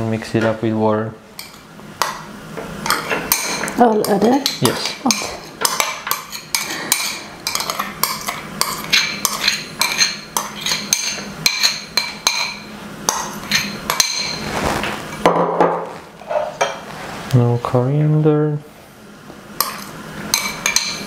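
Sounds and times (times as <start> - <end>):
metal spoon clinking on glass bowl: 2.9 - 14.4, 19.6 - 21.0.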